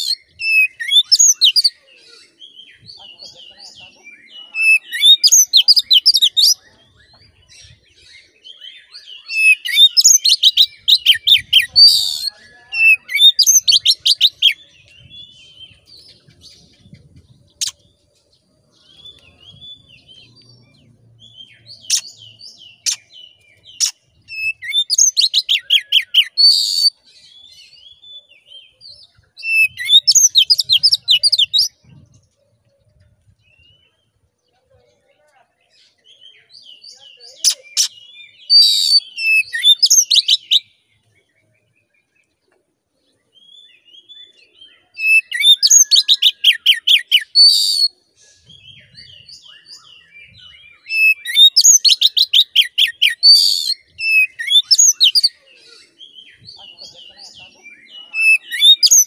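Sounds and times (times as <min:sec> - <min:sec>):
bird whistling song: 0:00.0 - 0:02.1, 0:04.6 - 0:07.8, 0:08.5 - 0:17.8, 0:18.8 - 0:27.0, 0:27.9 - 0:32.0, 0:36.2 - 0:40.8, 0:43.4 - 0:56.5, 0:57.7 - 0:59.0
bird twittering and calls: 0:00.0 - 0:59.0.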